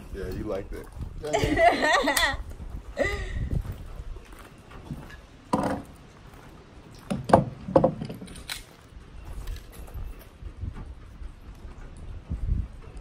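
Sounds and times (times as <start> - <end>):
footsteps on gravel: 3.5 - 7.0.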